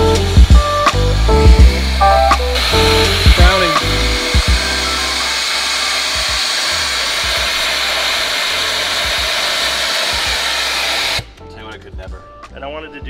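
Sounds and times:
electric drill boring into metal: 1.2s - 11.3s.

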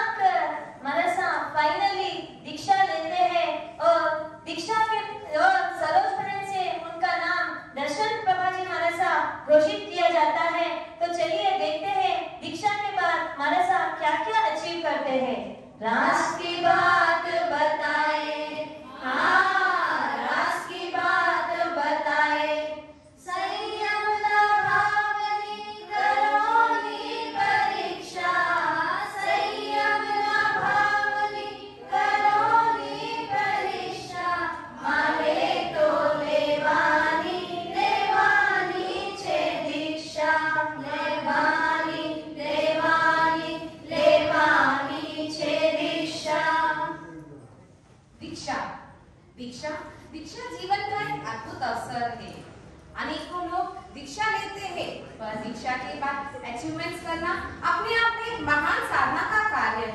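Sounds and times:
women singing in unison: 15.8s - 46.9s.

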